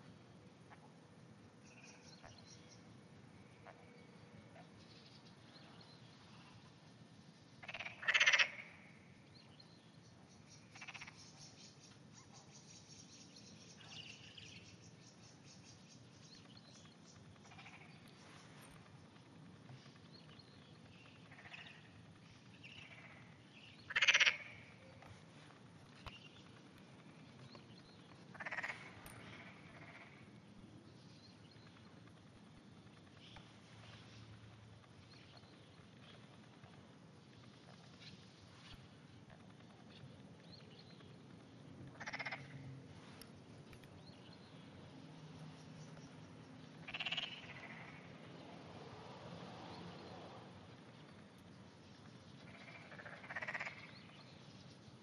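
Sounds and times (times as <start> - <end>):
frog croaking: 7.6 - 9.0, 10.7 - 11.3, 17.4 - 18.0, 21.2 - 21.9, 22.7 - 25.1, 28.3 - 30.3, 41.9 - 42.7, 46.8 - 48.2, 52.4 - 54.0.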